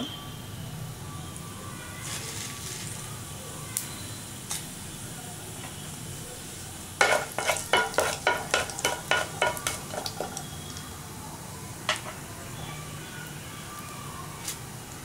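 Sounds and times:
oil sizzling: 0.9 - 15.0
wooden spatula scraping pan: 7.0 - 10.4.

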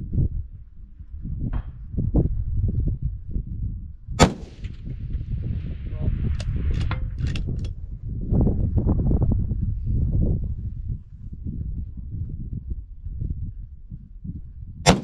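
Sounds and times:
wind rumbling on microphone: 0.0 - 15.0
rifle shot: 4.2 - 4.9.

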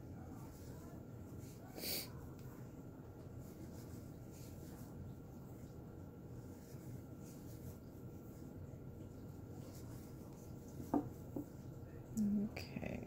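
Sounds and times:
yarn rubbing over crochet hook: 3.2 - 5.8, 6.4 - 11.7.

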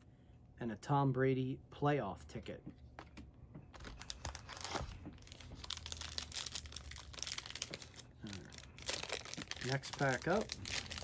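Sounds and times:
cellophane wrapper crinkling: 3.8 - 11.0.

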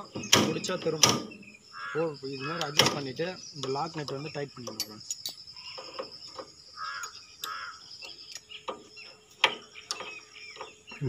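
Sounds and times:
harsh bird calls: 0.0 - 11.0
spanner clicking against metal: 3.6 - 5.4.

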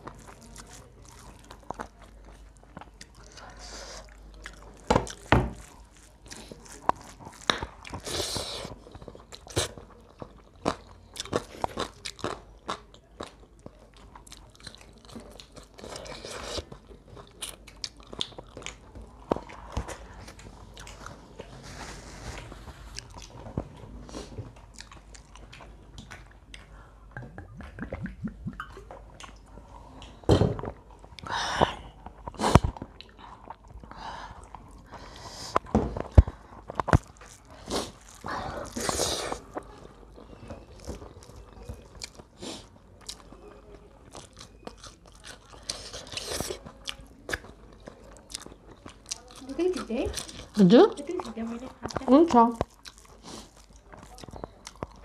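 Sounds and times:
chewing and crunching: 0.0 - 55.0
mouth clicks and smacks: 24.7 - 30.2.

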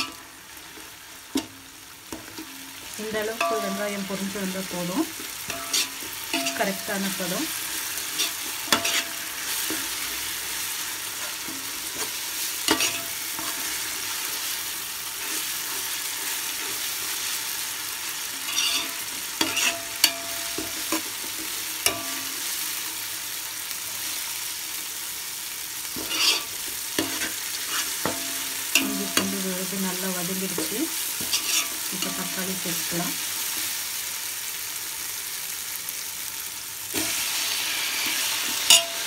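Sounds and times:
onions sizzling in oil: 0.0 - 39.0
spoon scraping metal pot: 5.5 - 7.2, 18.4 - 21.0, 26.0 - 28.2, 31.2 - 32.4.

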